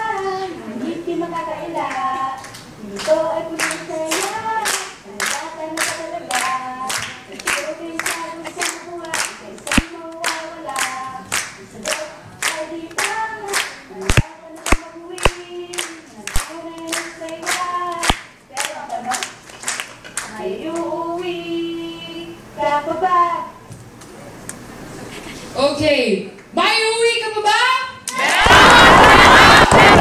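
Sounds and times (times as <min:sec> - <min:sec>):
group singing a chant: 0:00.0 - 0:18.2
steady handclaps: 0:02.4 - 0:20.4.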